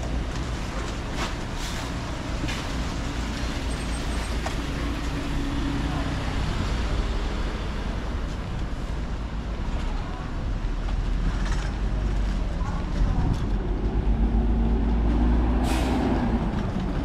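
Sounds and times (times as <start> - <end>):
traffic rumble: 0.0 - 17.0.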